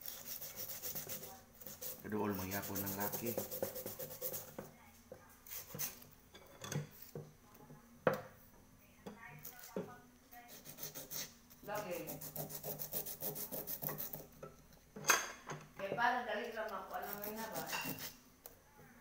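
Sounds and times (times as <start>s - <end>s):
sandpaper scraping metal: 0.0s - 4.5s, 10.5s - 14.2s, 16.9s - 18.2s.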